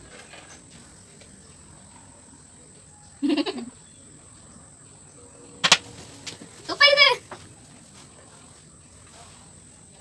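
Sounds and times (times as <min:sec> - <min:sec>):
girl laughing: 0:03.2 - 0:03.8.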